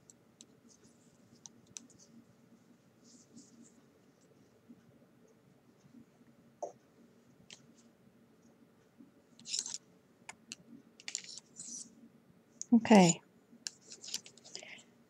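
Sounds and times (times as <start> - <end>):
knitting needle scrape: 9.4 - 9.8, 11.1 - 11.9, 13.7 - 14.6.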